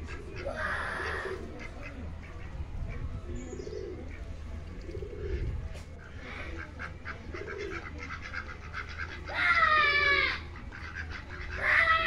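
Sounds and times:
low cooing bird calls: 0.0 - 12.0.

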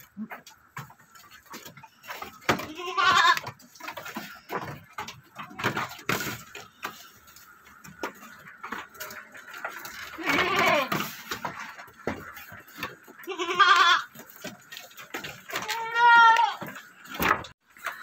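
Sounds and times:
hooves knocking on wooden floor: 0.0 - 18.0
goat bleating: 2.5 - 3.6, 10.0 - 11.2, 13.1 - 14.2, 15.5 - 16.7.

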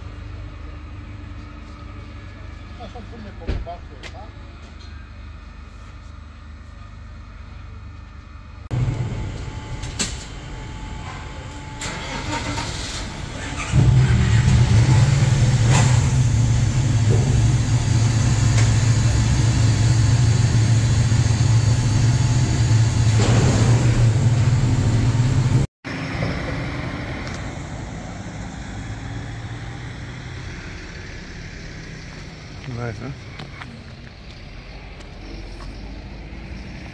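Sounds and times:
low engine drone: 0.0 - 36.9
vehicle engines starting: 8.7 - 36.9.

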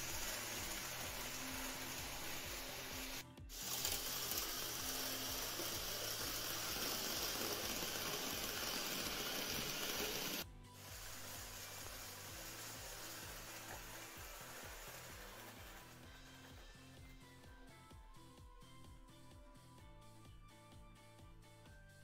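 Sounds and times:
model trains whirring on track: 0.0 - 16.0.

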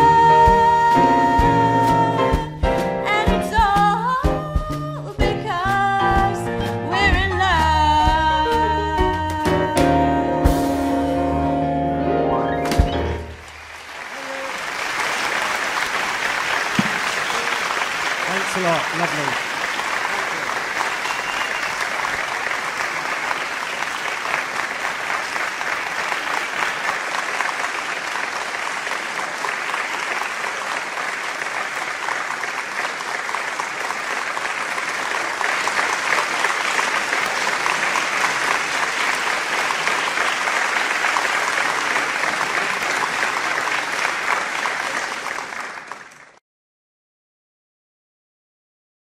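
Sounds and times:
audience applauding: 12.4 - 46.4.

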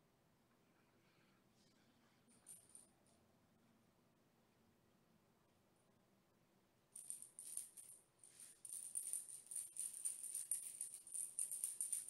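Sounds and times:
cat toy rattling and jingling: 7.0 - 12.0.

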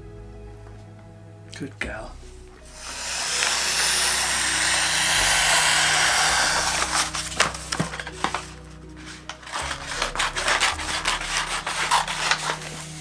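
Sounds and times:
paper crackling: 2.7 - 13.0
wrapping paper rustling: 2.7 - 13.0.

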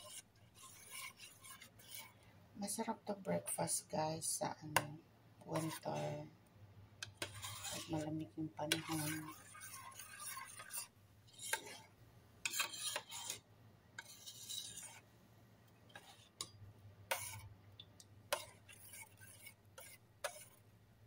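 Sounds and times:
spoon scraping metal pot: 0.0 - 2.2, 5.5 - 6.2, 7.0 - 13.4, 14.0 - 15.0, 15.9 - 17.5, 18.3 - 20.6.

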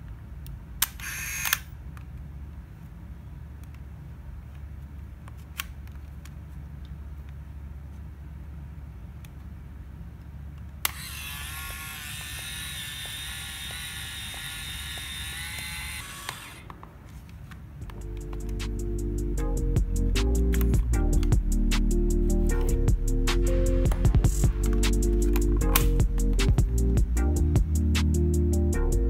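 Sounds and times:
camera rewind motor whirring: 1.0 - 1.6, 10.8 - 16.7.

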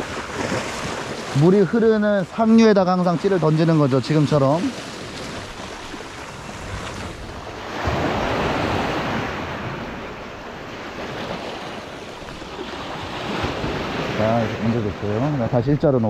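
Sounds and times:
waves washing against rocks: 0.0 - 15.3
wind on microphone: 4.7 - 15.4.

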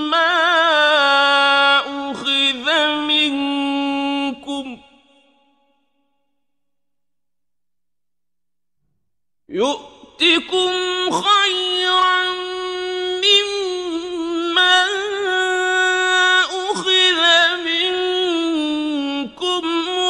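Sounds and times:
man chanting melodically: 0.0 - 4.8, 9.5 - 20.0.

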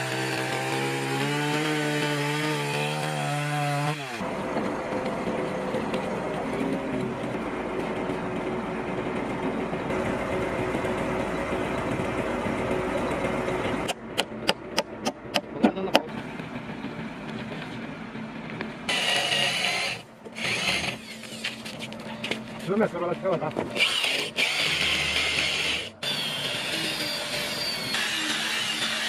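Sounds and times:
hammer striking wood: 13.8 - 16.1
electric drill boring into timber: 18.9 - 21.6, 23.7 - 29.0
power tool running: 18.9 - 21.7, 23.6 - 29.0.

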